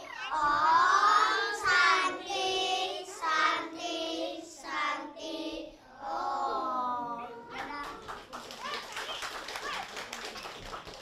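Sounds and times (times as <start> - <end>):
children singing in unison: 0.0 - 7.3.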